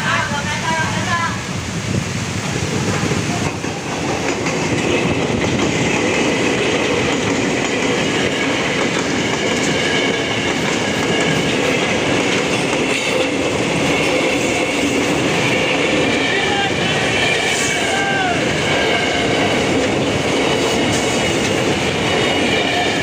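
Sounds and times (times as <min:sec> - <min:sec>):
train wheels clattering over rail joints: 0:02.5 - 0:16.3, 0:18.4 - 0:23.0.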